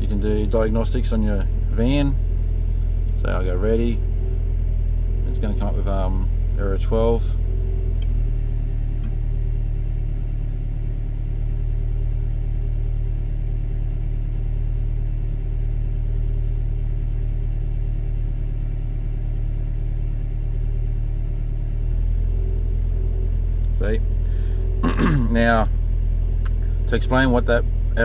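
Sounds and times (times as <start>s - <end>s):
car engine idling: 0.0s - 28.0s.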